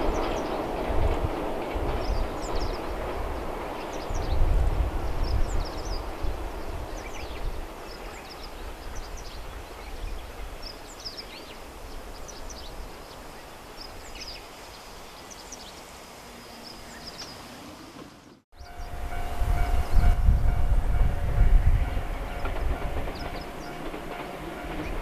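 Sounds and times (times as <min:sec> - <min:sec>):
small birds chirping: 0:02.0 - 0:04.5, 0:05.1 - 0:17.8, 0:23.1 - 0:23.9.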